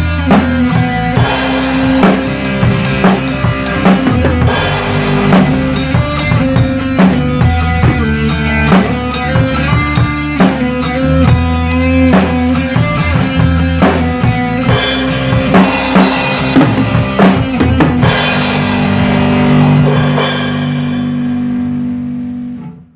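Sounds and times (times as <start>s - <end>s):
drum kit playing: 0.0s - 22.9s
rock backing track: 0.0s - 22.9s
cymbal strikes: 1.2s - 6.2s.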